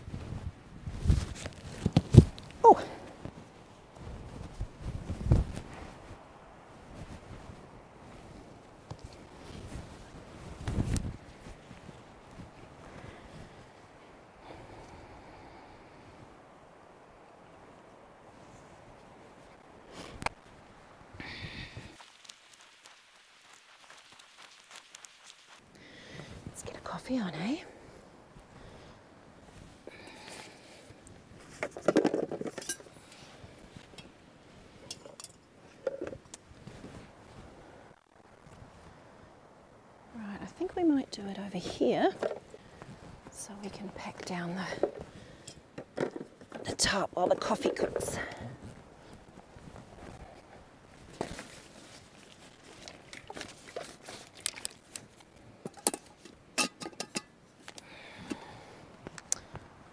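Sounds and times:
gear rustling and crinkling: 0.0 - 6.2, 6.8 - 14.0, 21.8 - 25.6, 41.6 - 57.9
camp cooking gear clinking: 31.5 - 33.2, 33.8 - 34.2, 34.8 - 36.4, 44.2 - 48.4, 52.5 - 58.6.

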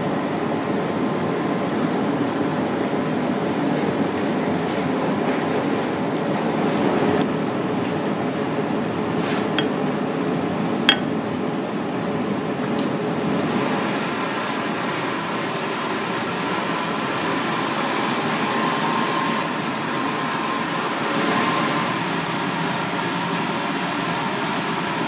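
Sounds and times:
kitchen equipment running: 9.2 - 10.2, 10.9 - 11.4, 13.2 - 25.0.

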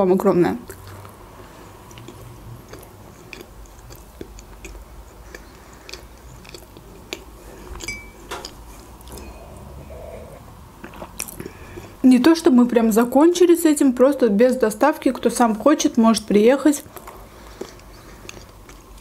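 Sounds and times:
person chewing: 0.7 - 12.0, 16.9 - 19.0.

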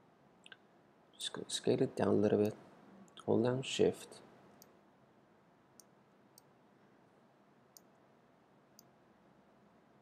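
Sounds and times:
computer mouse clicks: 7.7 - 8.0.

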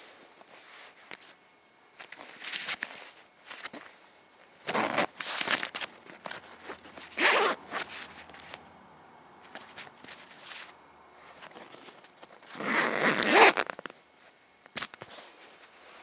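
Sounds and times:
fabric handling: 2.0 - 8.7
zipper being pulled open: 4.6 - 5.8, 6.7 - 8.6, 12.4 - 13.9.

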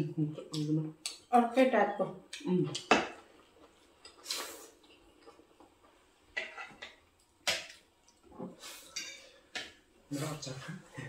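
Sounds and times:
cutlery clinking on plates: 6.4 - 7.8, 8.9 - 9.8.

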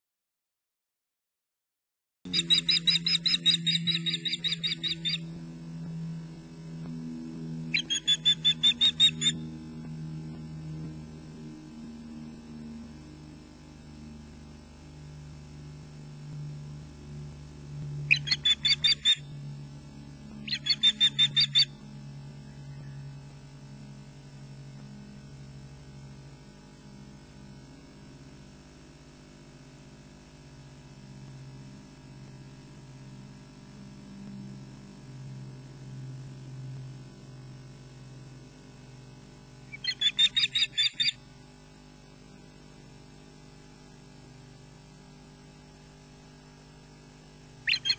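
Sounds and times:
osprey whistled alarm calls: 2.3 - 5.2, 7.7 - 9.4, 18.1 - 19.2, 20.4 - 21.7, 39.7 - 41.2, 47.6 - 47.9
low electrical hum: 2.3 - 47.9.

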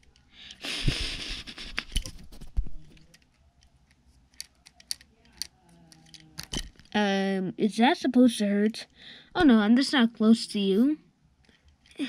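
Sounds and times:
small toys clicking together: 1.7 - 7.0, 11.4 - 12.0.

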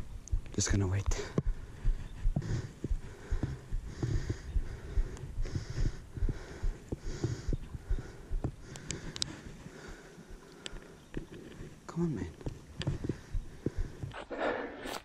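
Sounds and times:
breathing into microphone: 1.1 - 11.9, 12.5 - 15.0
mic handling thumps and rustle: 12.4 - 14.2.

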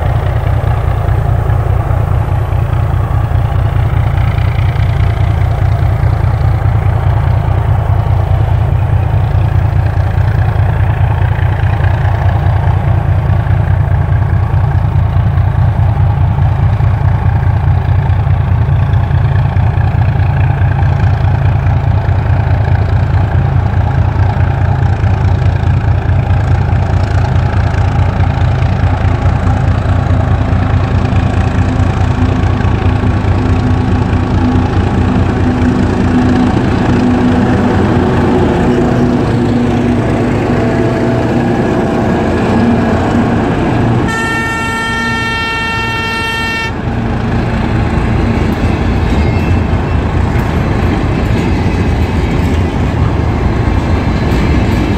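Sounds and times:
freight wagons rolling past: 0.0 - 44.2
diesel locomotive engine rumbling: 0.0 - 54.9
locomotive horn: 42.6 - 47.4.

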